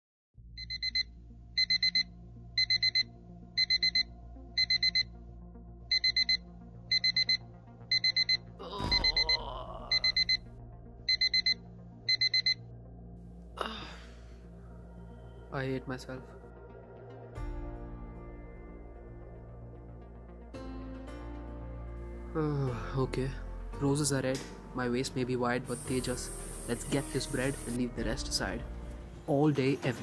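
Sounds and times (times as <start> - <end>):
electronic alarm beeping: 0.6 - 5.1, 5.9 - 10.5, 11.1 - 12.6.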